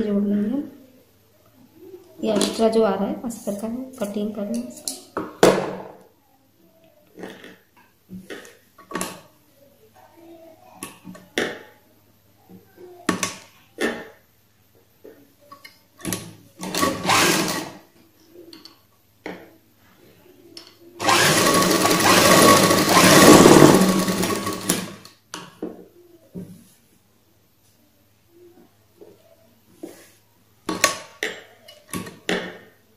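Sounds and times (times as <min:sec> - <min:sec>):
sewing machine stitching: 0:16.6 - 0:17.8, 0:21.0 - 0:25.0.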